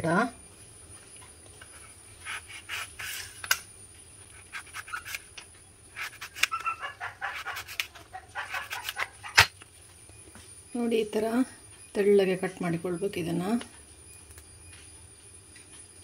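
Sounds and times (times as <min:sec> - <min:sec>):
knife slicing on wooden board: 0:06.0 - 0:09.5.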